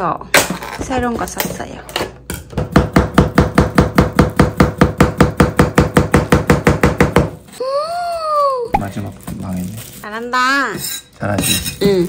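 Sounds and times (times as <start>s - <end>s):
knife chopping on plastic board: 2.5s - 7.4s.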